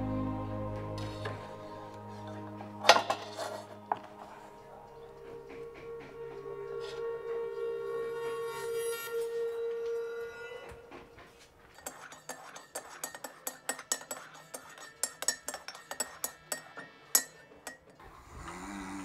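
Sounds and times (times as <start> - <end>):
spoon clinking against cup: 11.8 - 18.0.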